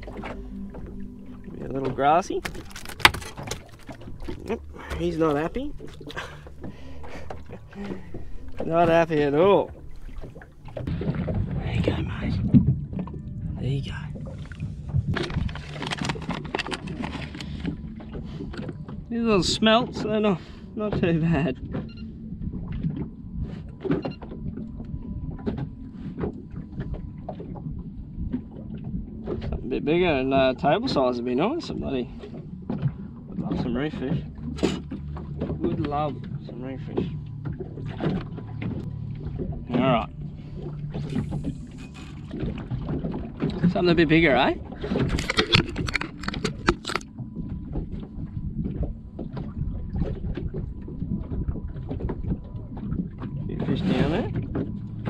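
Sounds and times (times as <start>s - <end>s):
wind on microphone: 0.0s - 18.7s, 44.6s - 55.0s
steady low rumble: 0.0s - 55.0s
water lapping against boat hull: 0.0s - 55.0s.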